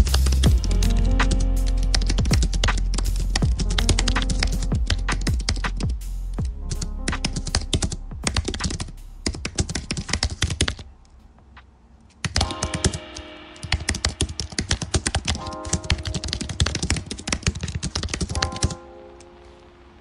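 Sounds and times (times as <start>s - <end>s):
fast typing on keyboard: 0.0s - 5.9s, 7.2s - 10.8s, 12.2s - 13.1s, 13.7s - 18.8s
background music: 0.0s - 20.0s.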